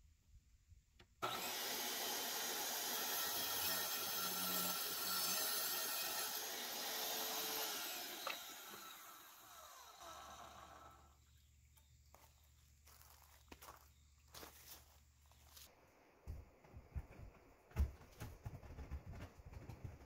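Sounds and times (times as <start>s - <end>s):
tile saw grinding whine: 1.2s - 11.2s
motor winding down: 7.0s - 11.1s.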